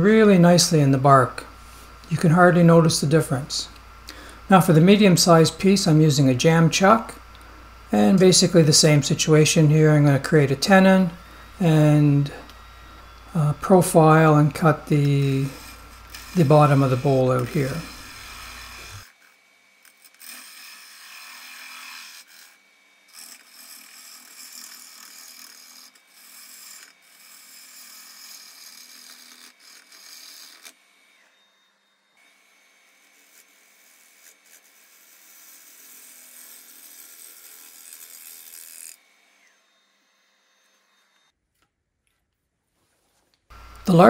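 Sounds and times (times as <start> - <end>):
lathe tool scraping wood: 4.2 - 31.5.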